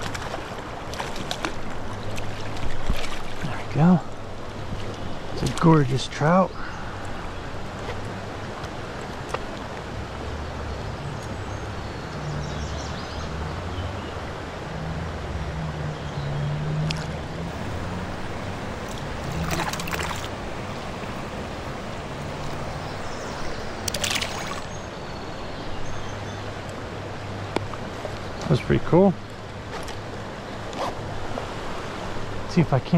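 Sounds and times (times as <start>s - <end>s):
water splashes and knocks: 0.0s - 3.8s, 4.5s - 5.9s, 16.8s - 22.8s, 23.8s - 24.7s
creek flowing: 0.0s - 32.9s.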